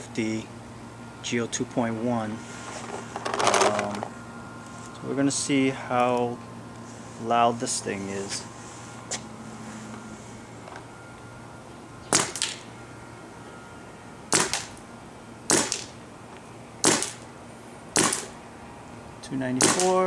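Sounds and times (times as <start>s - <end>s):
paintball marker firing shots: 14.3s - 14.7s, 15.5s - 15.9s, 16.8s - 17.2s, 18.0s - 18.3s, 19.6s - 20.0s.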